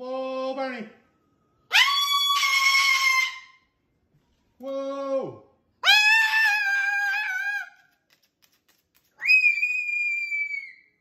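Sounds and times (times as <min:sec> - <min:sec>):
cockatoo calling: 0:01.7 - 0:03.6, 0:05.8 - 0:07.8.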